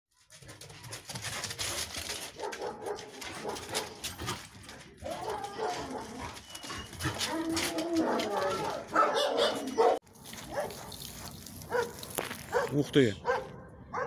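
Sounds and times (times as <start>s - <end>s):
scuffing noises: 2.4s - 13.6s
dog whining: 5.0s - 10.0s.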